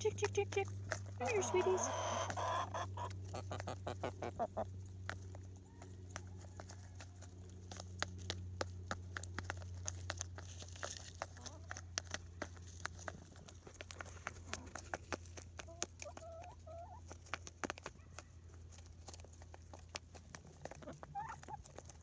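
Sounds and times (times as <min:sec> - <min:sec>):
chickens clucking: 0:00.0 - 0:22.0.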